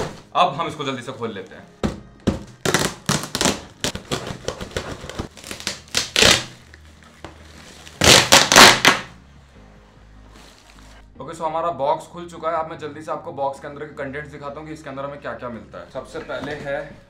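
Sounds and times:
plastic wrap ripping and crinkling: 2.4s - 9.2s.

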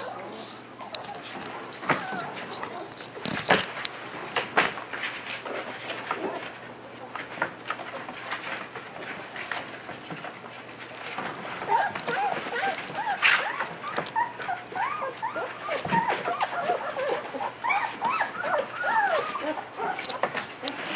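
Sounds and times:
puppies whimpering and squeaking: 0.0s - 3.2s, 11.1s - 20.9s.

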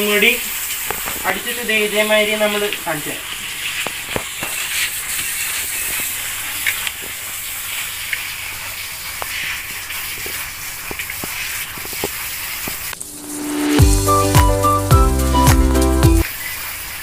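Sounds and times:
sealant hiss: 0.0s - 14.7s.

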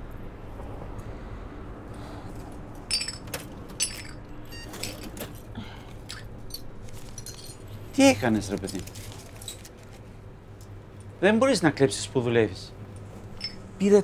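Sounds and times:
low steady hum: 0.0s - 14.0s
glass shards clinking: 2.9s - 5.4s, 6.1s - 9.7s, 13.4s - 13.8s.

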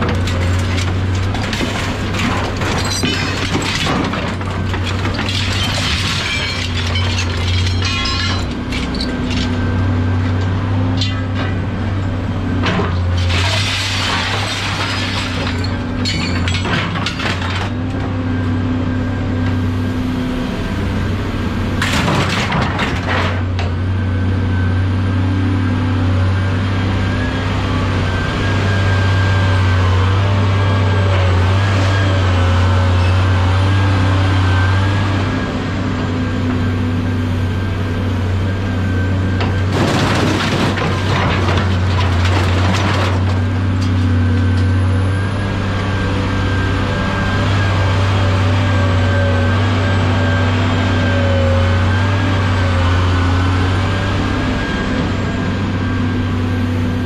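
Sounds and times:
scrap metal crashing: 0.0s - 9.6s, 12.6s - 17.8s, 21.8s - 23.5s, 39.4s - 44.0s
heavy engine humming: 0.0s - 57.0s.

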